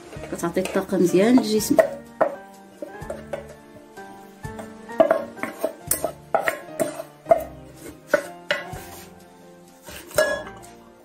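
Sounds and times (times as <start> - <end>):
background music: 0.0 - 11.0
spoon clinking on metal bowl and jar: 10.1 - 10.6.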